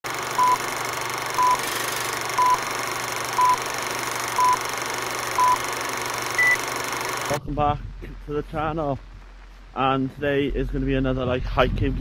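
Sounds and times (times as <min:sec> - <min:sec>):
short electronic beeps: 0:00.4 - 0:00.6, 0:01.4 - 0:01.6, 0:02.4 - 0:02.6, 0:03.4 - 0:03.6, 0:04.4 - 0:04.6, 0:05.4 - 0:05.6, 0:06.4 - 0:06.6.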